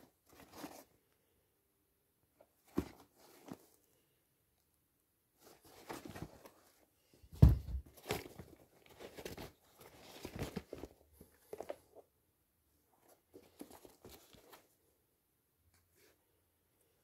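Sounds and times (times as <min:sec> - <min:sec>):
sneakers rustling and knocking: 0:02.6 - 0:03.6, 0:07.3 - 0:11.8
heavy thump: 0:07.3 - 0:07.9.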